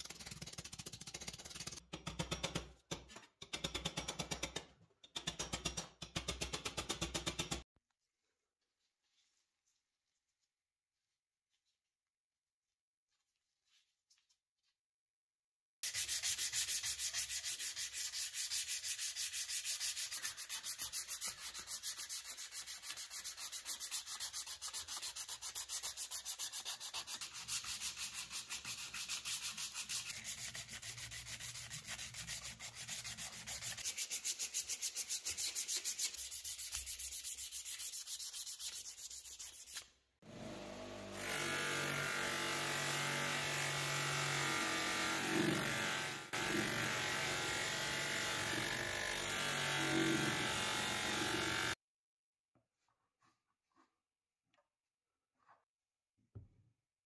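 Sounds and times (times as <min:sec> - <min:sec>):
sandpaper rubbing brass: 0:15.8 - 0:39.9.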